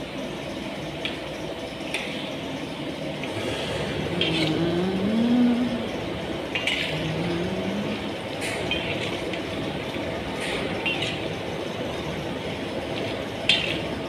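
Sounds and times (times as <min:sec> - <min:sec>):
oil bubbling and sizzling: 0:05.8 - 0:14.0
metal spoon clinking against pan: 0:06.5 - 0:07.1, 0:08.6 - 0:09.2, 0:10.8 - 0:11.3, 0:13.4 - 0:13.9.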